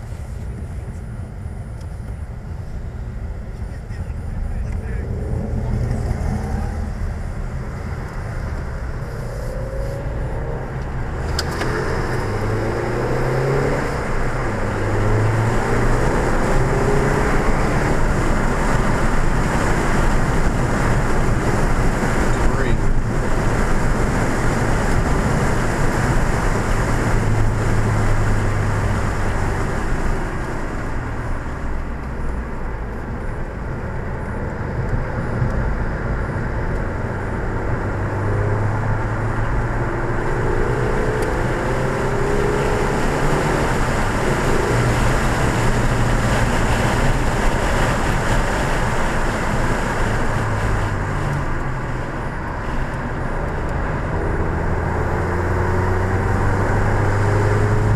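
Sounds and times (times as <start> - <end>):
car engine revving: 3.6 - 57.9
wind noise: 33.7 - 57.9.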